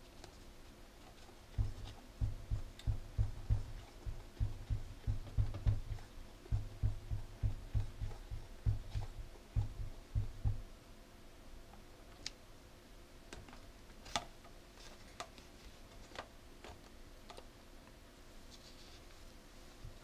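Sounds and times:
low soft thumps: 0:01.5 - 0:10.8.

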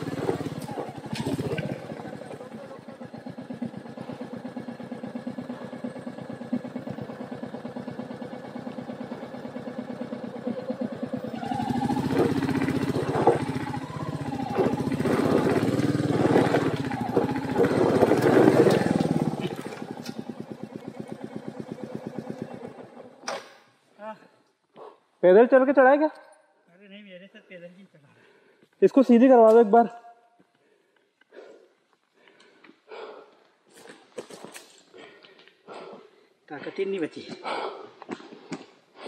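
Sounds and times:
motorcycle engine running: 0:00.0 - 0:23.2.

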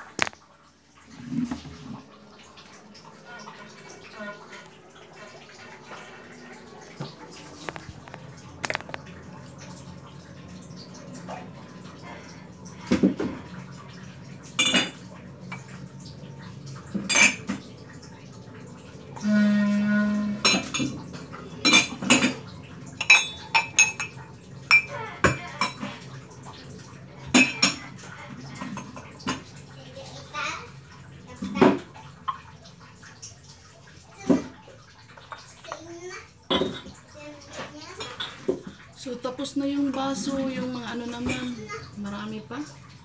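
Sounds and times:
glasses and dishes clinking: 0:14.6 - 0:15.0, 0:17.0 - 0:17.6, 0:23.0 - 0:25.9, 0:27.3 - 0:27.8, 0:36.5 - 0:36.9.

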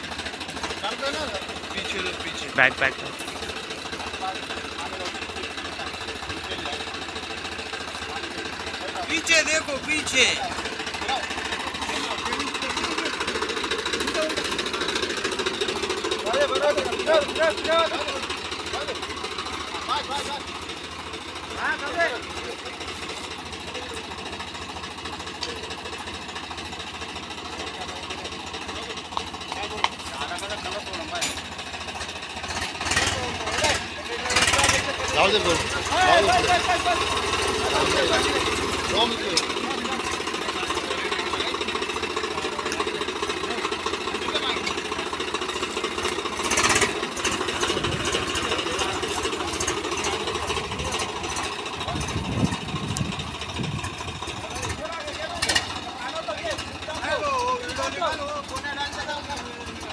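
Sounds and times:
tractor diesel engine chugging: 0:00.0 - 0:59.9.

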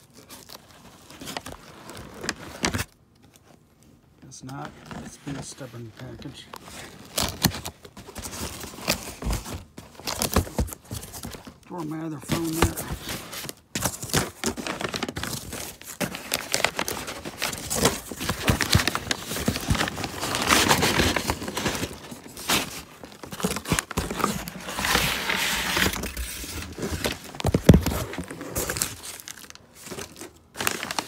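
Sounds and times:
paper bag crinkling: 0:10.7 - 0:31.0.

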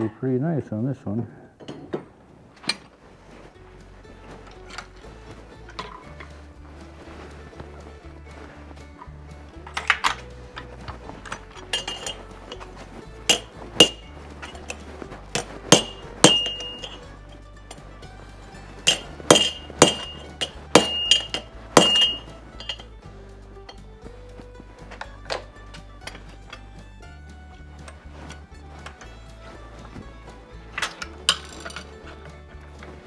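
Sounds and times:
hammer striking iron on anvil: 0:13.3 - 0:14.8, 0:15.4 - 0:17.0, 0:18.8 - 0:22.9.

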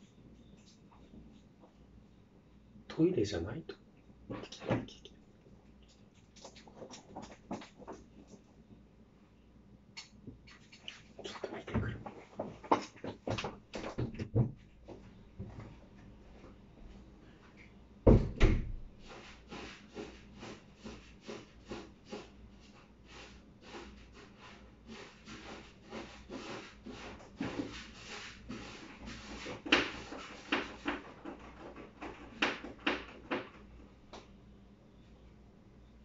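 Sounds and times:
cat scratching in litter box: 0:19.0 - 0:33.7.

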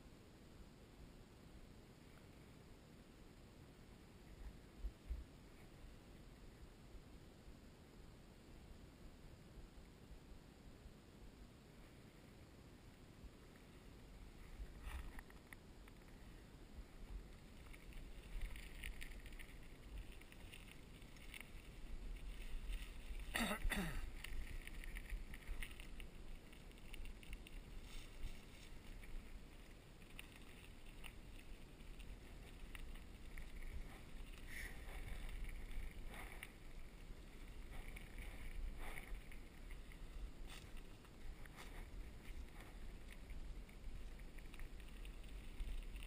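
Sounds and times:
bicycle tyres rumbling on dirt: 0:13.7 - 0:46.0.

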